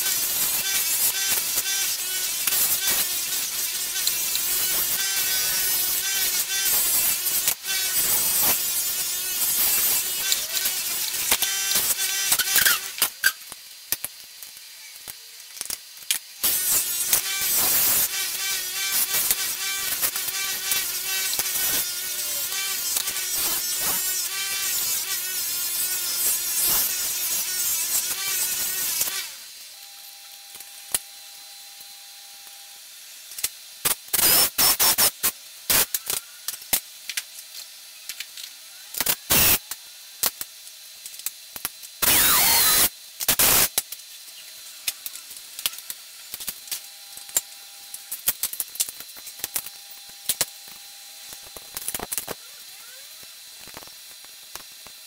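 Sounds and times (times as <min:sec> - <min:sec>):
bench polisher motor: 0:00.0 - 0:13.0, 0:16.4 - 0:32.8
blade hissing against buffing wheel: 0:16.4 - 0:29.5, 0:42.0 - 0:43.6.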